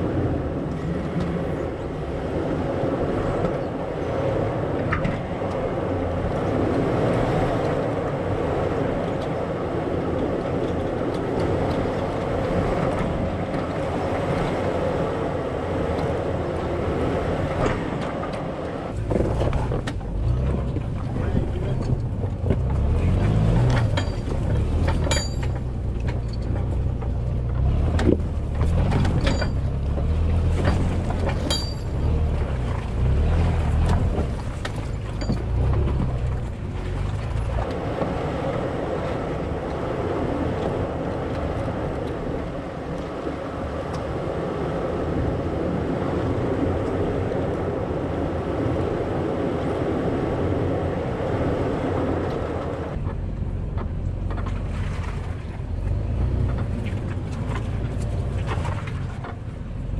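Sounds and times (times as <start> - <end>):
engine labouring: 0.0 - 59.9
steady rushing noise: 27.0 - 54.0.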